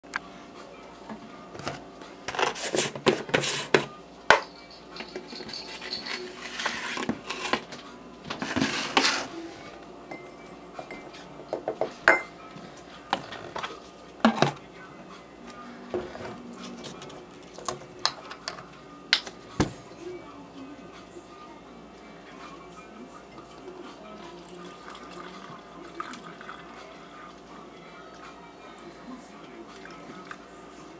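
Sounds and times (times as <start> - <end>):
plastic scoop and tub clattering: 1.6 - 3.9, 8.3 - 9.3, 13.2 - 14.6.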